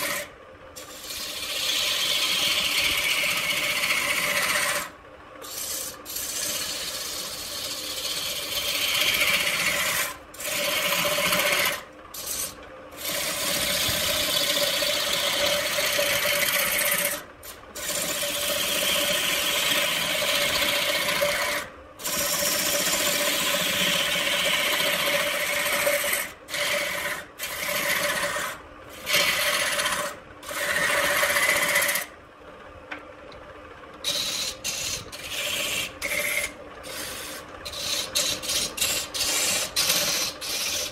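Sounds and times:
lathe motor hum: 0:00.0 - 0:12.4, 0:17.8 - 0:32.1
turning tool scraping wood: 0:00.0 - 0:32.1, 0:34.0 - 0:40.9.

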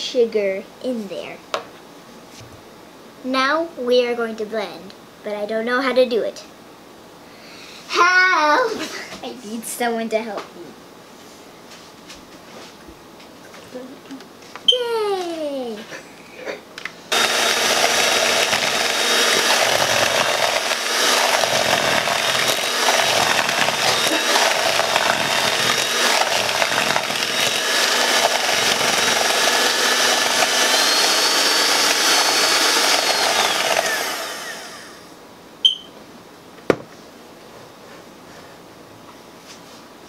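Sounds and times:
electric hand mixer running: 0:17.1 - 0:35.1.

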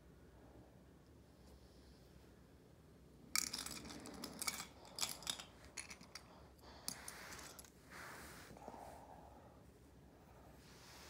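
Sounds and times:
plastic bricks clicking and clattering: 0:03.4 - 0:06.3.

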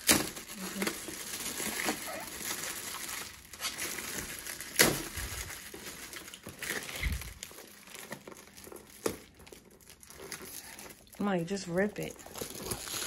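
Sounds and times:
foil wrapping crinkling: 0:00.0 - 0:13.0
sharp foil crackle: 0:00.0 - 0:13.0.

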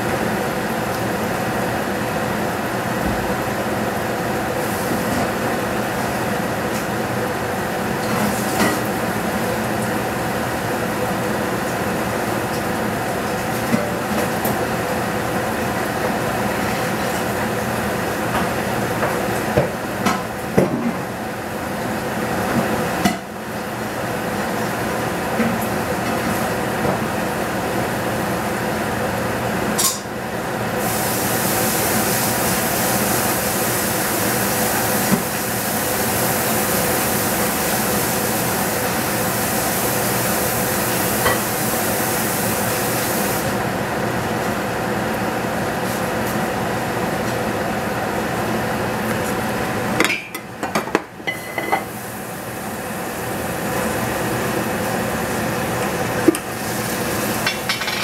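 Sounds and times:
cooking hissing on stove: 0:03.9 - 0:06.8, 0:30.7 - 0:43.7, 0:51.2 - 0:58.0.

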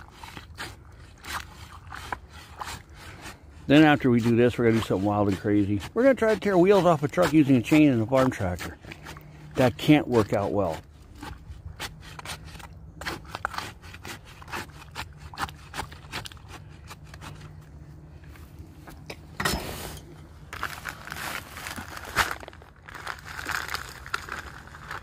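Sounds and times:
stick scraping in wet concrete: 0:00.0 - 0:22.4
paper bag crinkling: 0:19.8 - 0:25.0.

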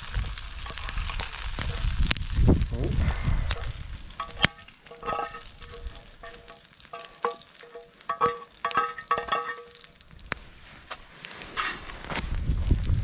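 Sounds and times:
spatula scraping frying pan: 0:00.6 - 0:01.4, 0:03.6 - 0:10.0, 0:11.4 - 0:11.9
metal pan ringing: 0:04.2 - 0:10.0.

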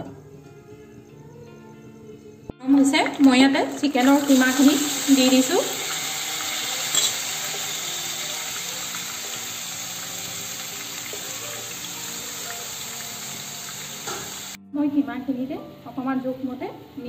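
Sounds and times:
chicken sizzling in hot oil: 0:03.9 - 0:14.6.

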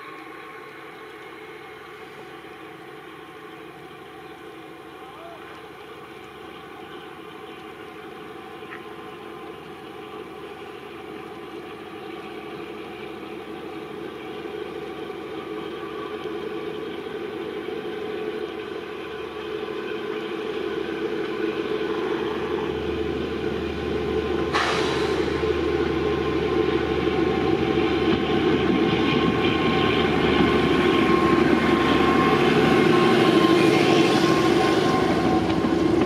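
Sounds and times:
diesel locomotive engine: 0:00.0 - 0:36.0
burst of hiss: 0:24.5 - 0:25.6.

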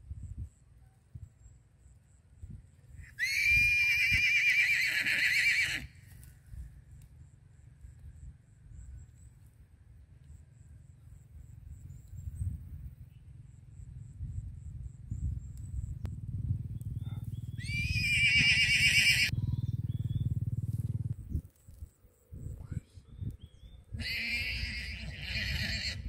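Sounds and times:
low rumble with thumps: 0:13.8 - 0:18.0, 0:19.3 - 0:23.9.

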